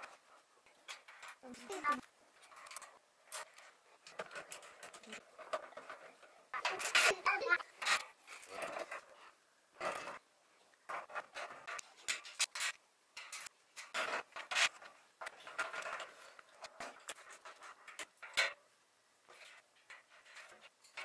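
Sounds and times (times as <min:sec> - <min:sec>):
metal tubes clinking and scraping: 0:00.0 - 0:10.2, 0:10.9 - 0:18.6, 0:19.3 - 0:21.0.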